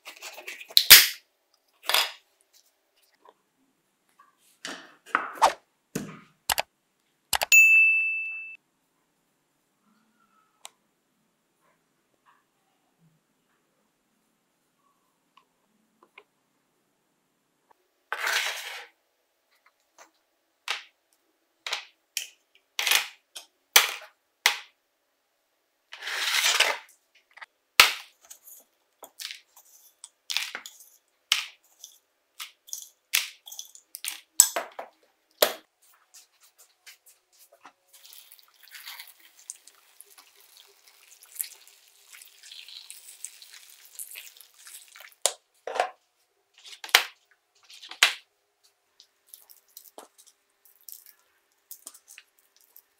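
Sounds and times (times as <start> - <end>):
faint water pouring: 37.9 - 45.2, 49.3 - 50.0.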